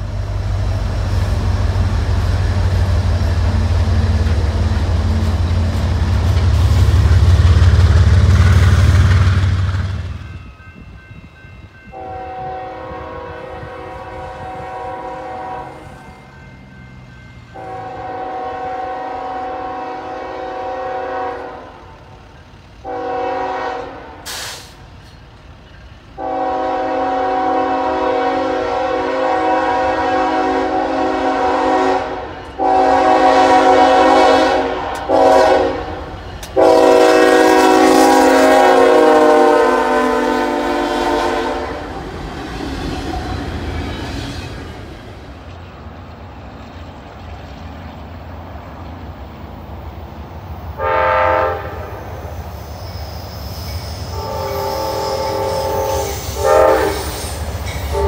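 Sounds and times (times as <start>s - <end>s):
locomotive air horn blasts: 11.9s - 16.1s, 17.5s - 22.0s, 22.8s - 24.7s, 26.2s - 42.0s, 50.8s - 52.1s, 54.1s - 58.0s.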